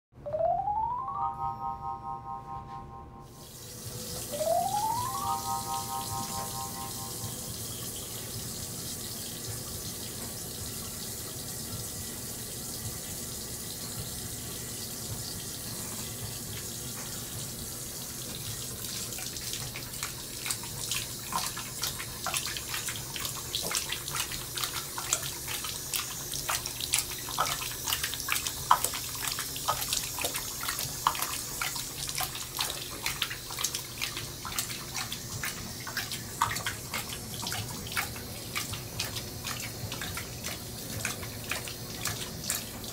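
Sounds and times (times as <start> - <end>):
sink tap running: 3.3 - 42.9
dog lapping water: 18.2 - 42.9.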